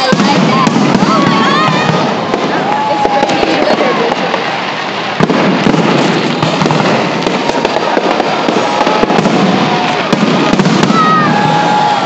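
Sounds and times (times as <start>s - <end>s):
fireworks bursting: 0.0s - 12.0s
sharp firework bang: 5.2s - 12.0s.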